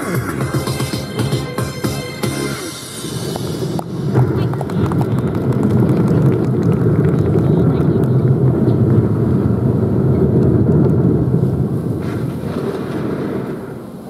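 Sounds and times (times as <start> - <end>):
wind buffeting microphone: 2.6 - 14.0.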